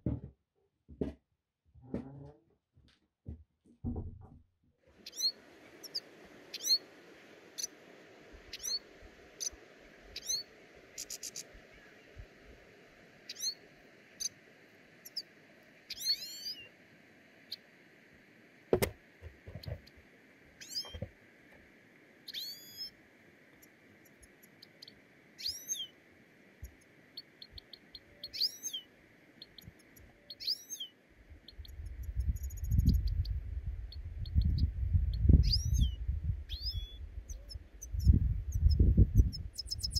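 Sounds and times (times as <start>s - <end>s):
knock: 0.0s - 1.2s, 3.3s - 4.4s, 18.8s - 19.8s
small birds chirping: 4.9s - 16.8s, 17.4s - 17.8s, 19.2s - 21.2s, 22.2s - 39.9s
wind rumble on microphone: 31.4s - 39.9s.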